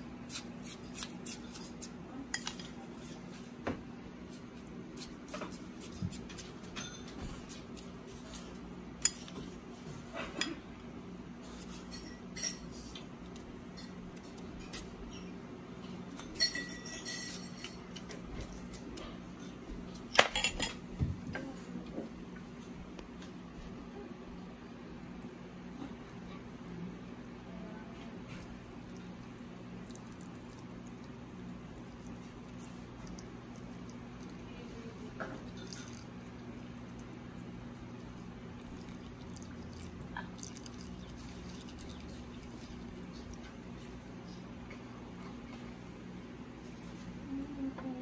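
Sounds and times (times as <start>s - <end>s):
low steady hum: 0.0s - 48.0s
metal spoon clinking on glass: 16.4s - 17.8s.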